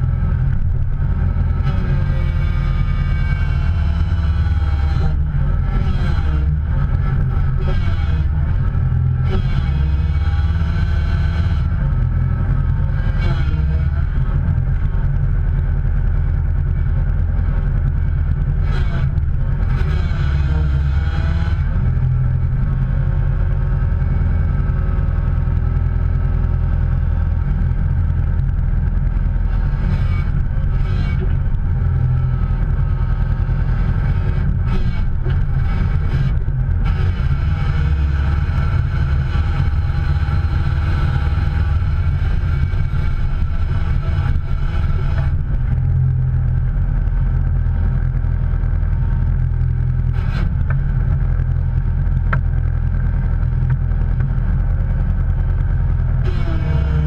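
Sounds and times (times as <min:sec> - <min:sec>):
vehicle engine running: 0:00.0 - 0:57.0.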